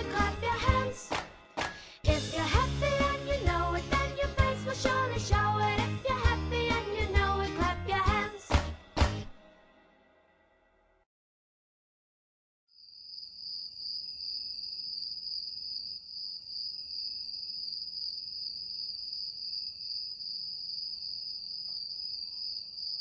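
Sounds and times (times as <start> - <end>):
insects trilling: 12.8 - 23.0.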